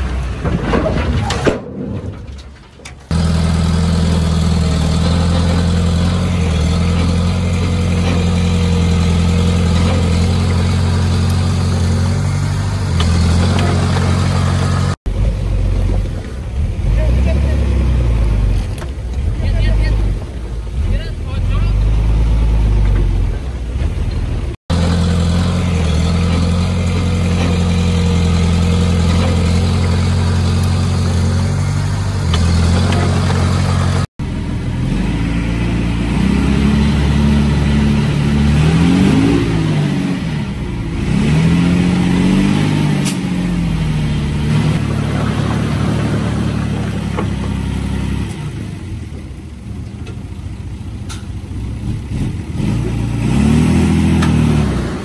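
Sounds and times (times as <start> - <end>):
engine revving: 3.1 - 23.4, 24.5 - 49.0, 51.7 - 55.0
heavy diesel engine drone: 3.1 - 55.0.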